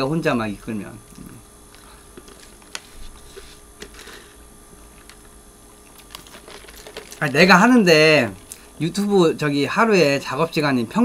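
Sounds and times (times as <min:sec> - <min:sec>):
soft handling sounds: 0:01.7 - 0:07.5.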